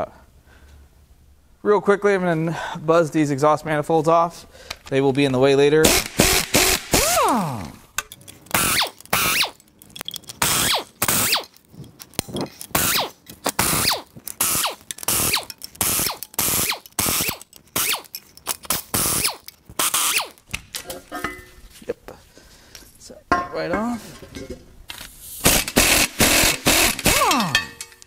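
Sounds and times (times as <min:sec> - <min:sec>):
cordless power wrench whining: 0:05.9 - 0:07.8, 0:08.5 - 0:09.6, 0:10.3 - 0:20.5, 0:25.4 - 0:27.6.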